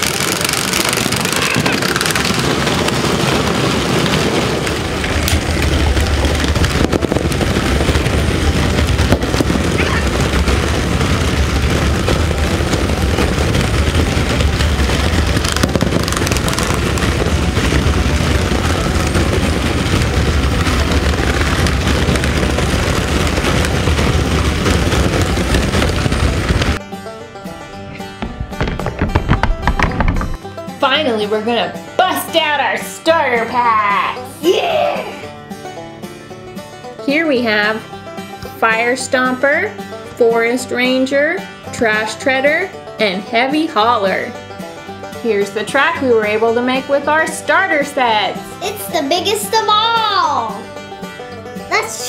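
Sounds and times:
toy trucks running on plastic track: 0.0s - 26.8s
wheels clattering on plastic: 0.0s - 26.9s, 27.6s - 30.5s
plastic boulder rolling rumble: 0.0s - 33.6s.

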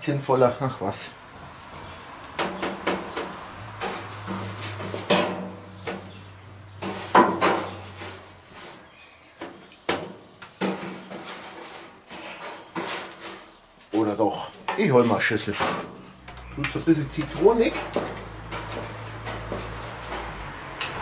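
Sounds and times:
brush scrubbing metal: 1.8s - 9.6s, 10.6s - 14.0s, 16.7s - 20.8s.

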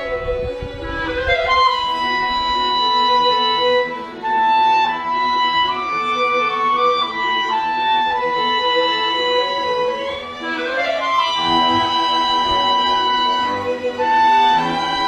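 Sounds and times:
string quartet playing slow notes: 0.0s - 15.0s.

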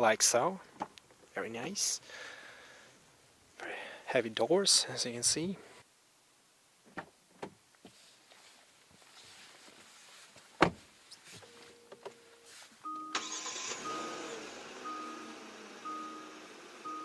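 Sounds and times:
car door shutting: 10.6s - 10.8s
two-tone warning chime: 12.8s - 17.0s.

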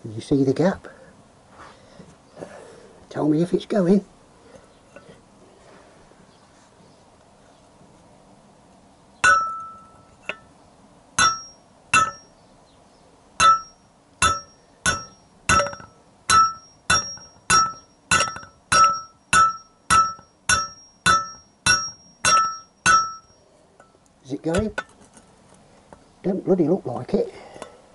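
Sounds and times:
hammer striking metal: 9.2s - 10.5s, 11.2s - 12.3s, 13.4s - 23.4s, 24.5s - 24.9s.

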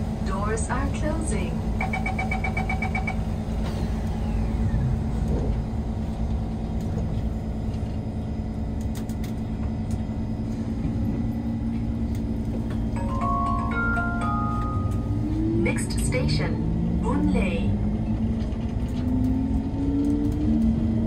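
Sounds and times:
metro train cabin rumble: 0.0s - 21.0s
short multi-note chime: 13.0s - 15.2s.

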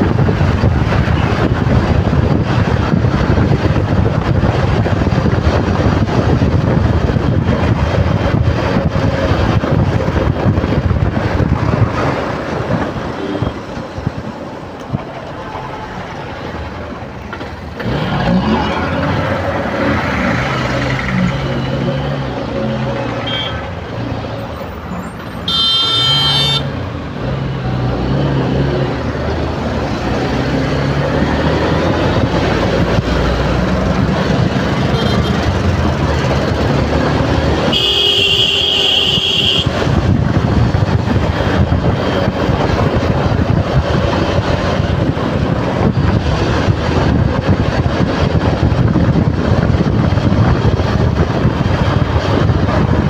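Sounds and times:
wind noise: 0.0s - 53.0s
motorcycle engine: 16.0s - 53.0s
vehicle horn honking: 23.2s - 23.7s, 25.4s - 26.7s, 34.9s - 35.4s, 37.7s - 39.8s.

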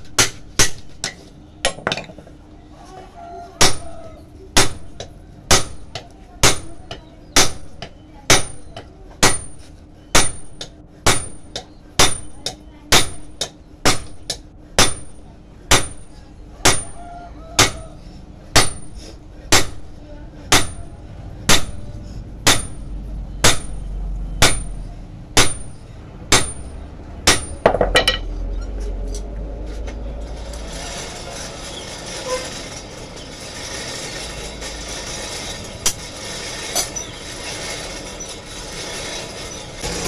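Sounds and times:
hammer striking steel on anvil: 0.0s - 2.2s, 3.6s - 4.0s, 4.6s - 17.0s, 17.6s - 17.9s, 18.5s - 19.9s, 20.5s - 20.9s, 21.5s - 28.3s
coal forge rushing: 29.7s - 40.0s.

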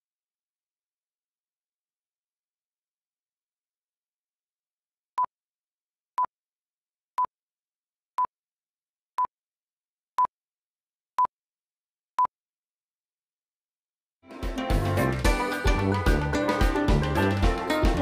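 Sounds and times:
music: 14.2s - 18.0s.

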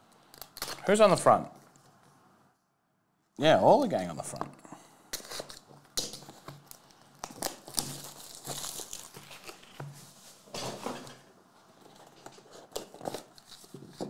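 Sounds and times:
plastic wrapping crinkling and tearing: 0.2s - 1.0s, 5.1s - 10.0s, 11.9s - 14.0s.

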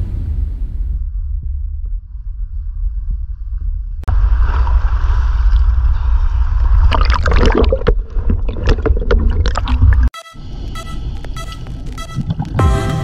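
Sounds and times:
sea water sloshing and gurgling: 4.1s - 10.1s
underwater bubbles crackling: 6.7s - 10.1s
music: 11.4s - 13.0s.

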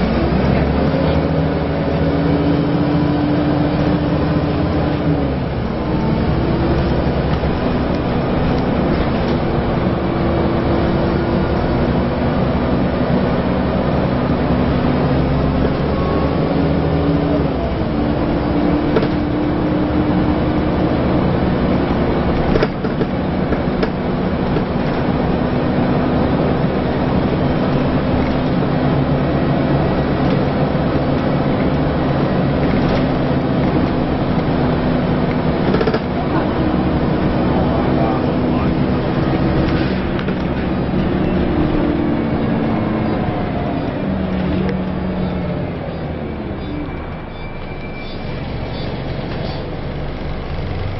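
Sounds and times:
bus engine running: 0.0s - 50.9s
knocks from bus body: 18.9s - 19.3s
gearbox whine: 24.6s - 50.9s.

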